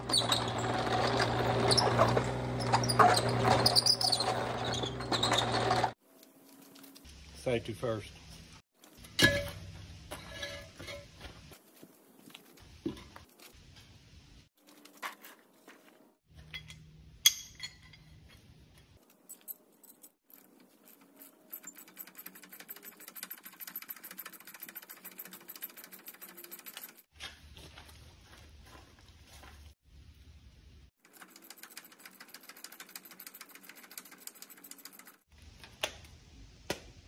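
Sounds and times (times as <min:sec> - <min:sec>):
metal tools clinking: 0:09.1 - 0:11.2, 0:16.3 - 0:27.1.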